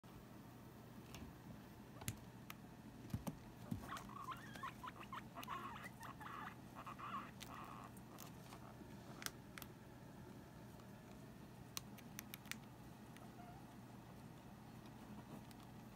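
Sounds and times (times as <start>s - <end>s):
guinea pigs squeaking: 3.6s - 9.3s, 13.2s - 13.8s.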